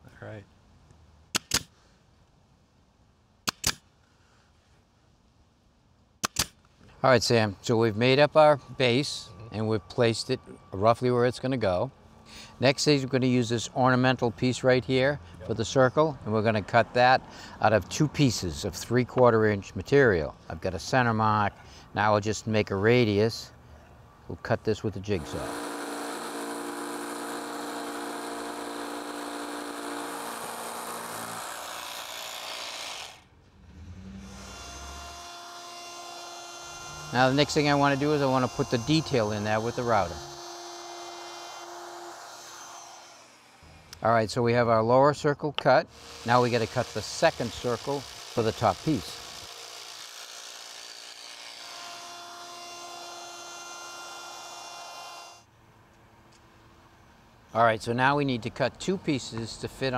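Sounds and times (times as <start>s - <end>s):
jigsaw cutting board: 25.2s - 33.2s, 34.3s - 43.7s, 45.9s - 55.4s
router running: 25.2s - 33.2s, 34.2s - 44.0s, 45.9s - 55.4s
low motor sound: 25.2s - 44.0s.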